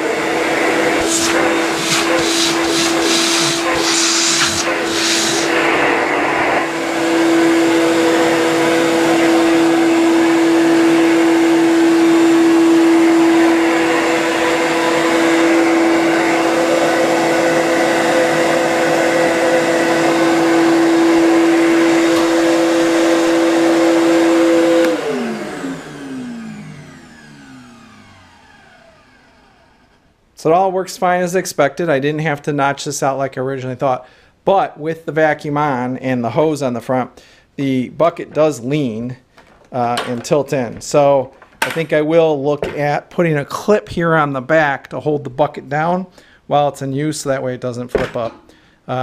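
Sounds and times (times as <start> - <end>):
shop vacuum running: 0.0 - 30.1
vacuum motor winding down: 0.0 - 30.1.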